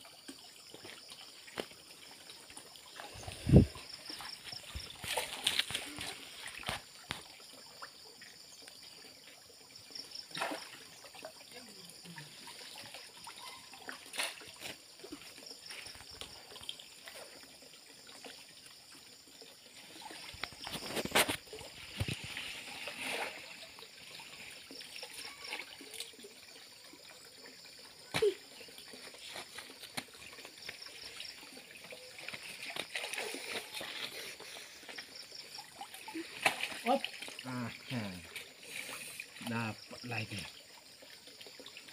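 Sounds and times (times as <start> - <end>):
pond water sloshing: 0.0 - 41.9
sharp water splashes: 2.6 - 7.7, 10.0 - 17.4, 28.0 - 34.6, 35.5 - 40.4.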